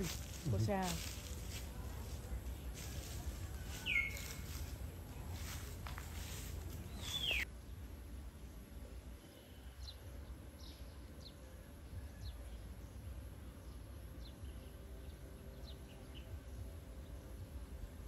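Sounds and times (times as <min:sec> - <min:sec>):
low outdoor rumble: 0:00.0 - 0:18.0
high falling bird chirps: 0:03.7 - 0:04.7, 0:06.2 - 0:07.5.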